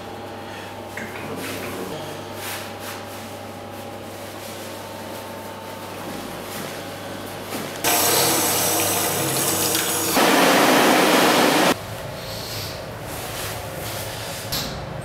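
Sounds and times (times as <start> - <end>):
tap water running into sink: 7.9 - 10.2.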